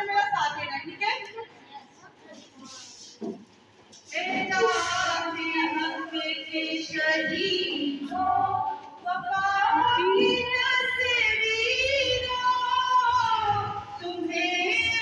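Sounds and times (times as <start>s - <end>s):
woman singing: 4.1s - 15.0s.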